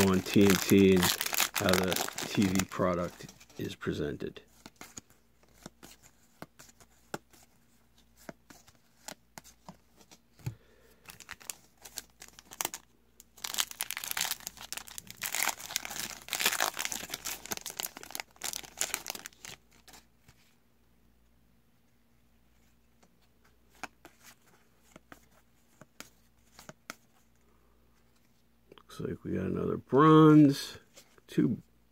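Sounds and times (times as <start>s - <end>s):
foil wrapper tearing and crinkling: 0.0s - 3.0s, 11.1s - 12.8s, 13.4s - 19.6s.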